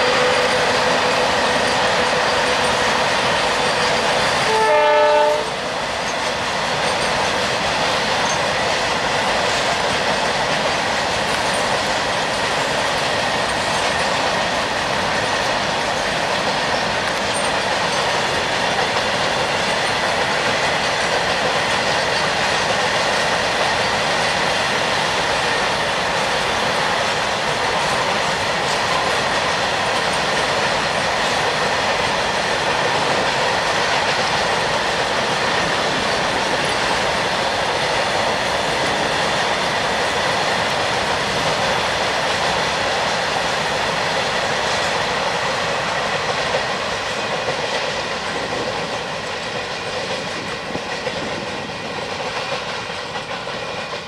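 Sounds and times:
high wheel squeal: 0:00.0 - 0:05.4
train wheels rumbling on rails: 0:00.0 - 0:54.0.

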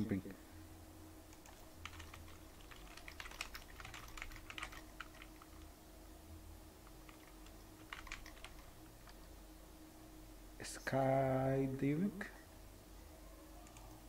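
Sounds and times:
computer keyboard typing: 0:01.3 - 0:05.7, 0:07.0 - 0:08.7, 0:13.6 - 0:14.0.

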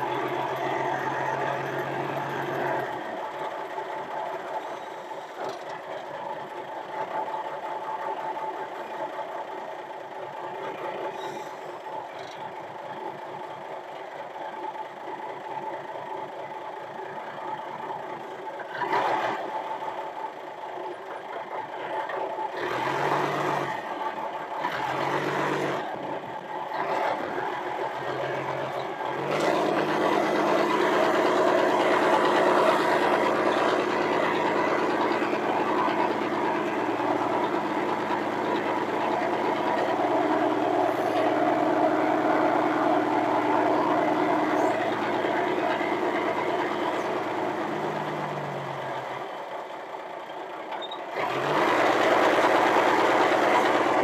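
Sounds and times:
forklift engine running: 0:00.0 - 0:54.0.

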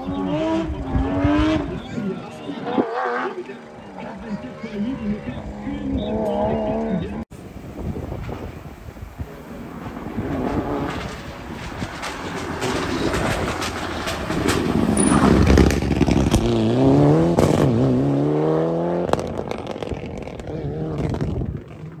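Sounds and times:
rally car passing at speed: 0:09.6 - 0:22.0.

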